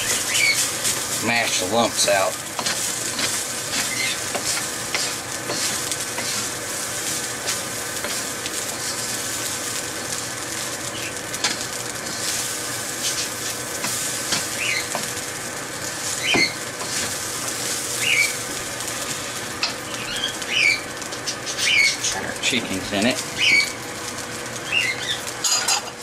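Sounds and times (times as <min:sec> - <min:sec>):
rice sizzling in a pan: 0:00.0 - 0:26.0
spatula scraping and tapping: 0:02.6 - 0:06.5.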